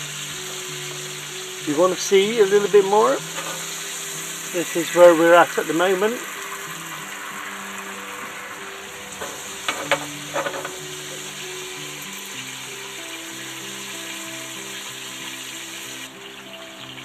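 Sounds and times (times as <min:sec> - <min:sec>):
pork chops sizzling in a frying pan: 0:00.0 - 0:17.0
tongs clicking against pan: 0:03.3 - 0:03.8.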